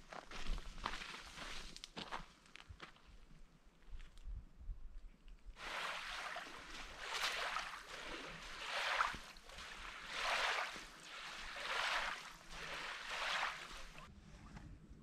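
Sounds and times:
paddle strokes splashing water: 5.6 - 14.1.

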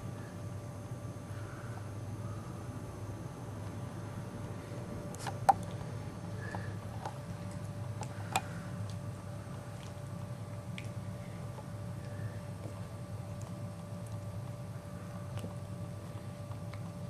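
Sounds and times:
steady low hum: 0.0 - 17.0
puppies gnawing chew bones: 5.0 - 17.0
teeth clicking on bone: 6.4 - 14.6.

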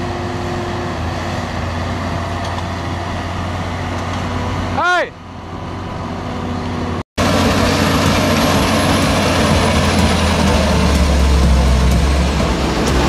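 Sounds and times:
tractor engine under load: 7.2 - 13.0.

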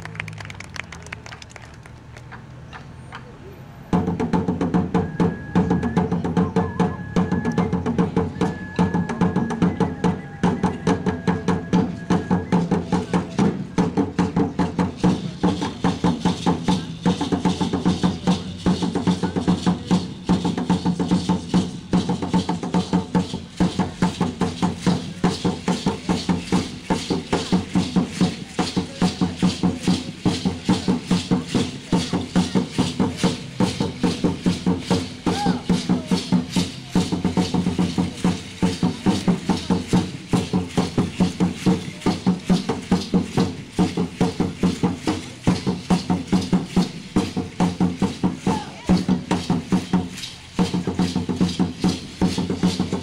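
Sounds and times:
wooden drums beating: 3.9 - 53.0
ankle rattles shaking: 12.5 - 53.0.

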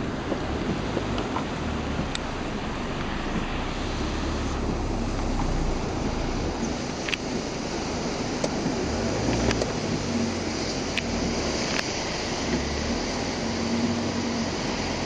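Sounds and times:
car engine idling: 0.0 - 15.0
heavy rain falling: 0.0 - 15.0
sharp taps of raindrops: 0.2 - 2.4, 3.0 - 3.6, 4.6 - 7.5, 8.3 - 13.1.

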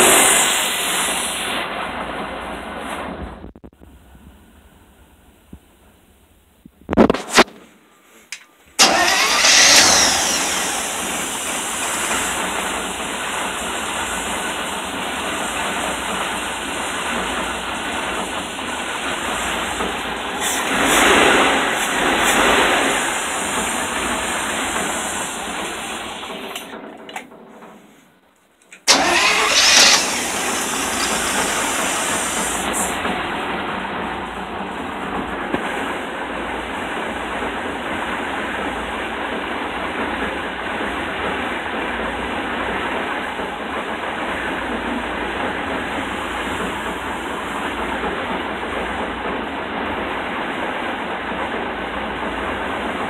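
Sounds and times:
engine starting and revving: 8.8 - 26.8, 28.8 - 33.4.

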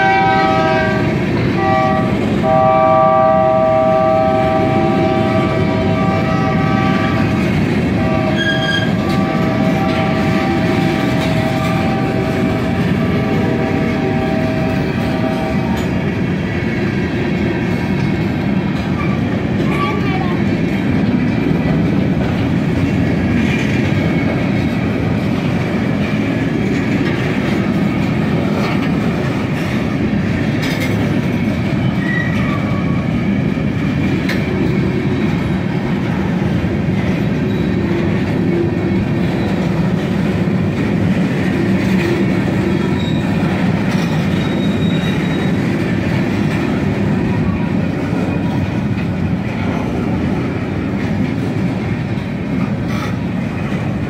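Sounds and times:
freight train wheels rumbling on rail: 0.0 - 54.0
faint wheel squeals: 44.1 - 45.6.

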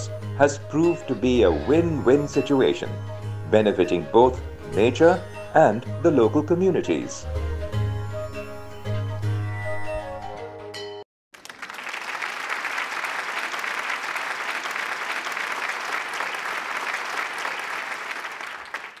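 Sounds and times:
background music: 0.0 - 11.0
crowd applauding: 11.4 - 19.0.

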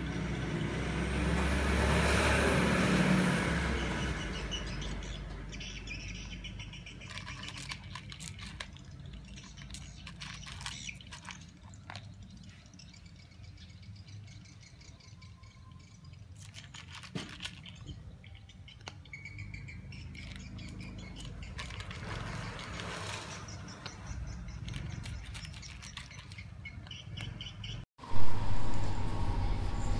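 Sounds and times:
cat crunching kibble: 7.0 - 12.0
low steady rumble: 28.0 - 29.9.

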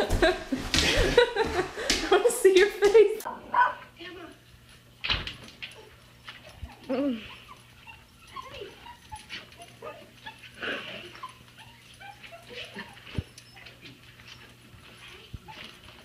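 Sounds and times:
dogs whining: 5.7 - 16.0.

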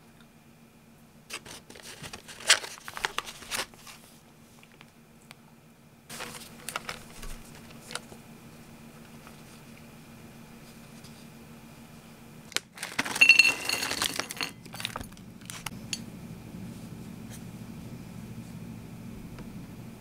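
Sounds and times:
snack pieces clattering onto plate: 12.5 - 15.7.

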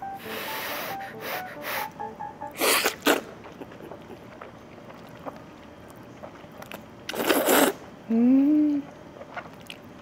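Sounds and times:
noodles being slurped: 2.6 - 7.9.

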